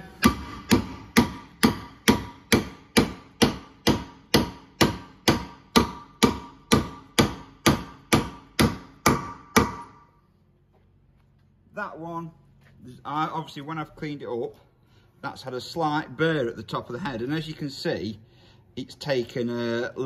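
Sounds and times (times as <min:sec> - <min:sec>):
hammer striking metal mandrel: 0:00.0 - 0:10.1.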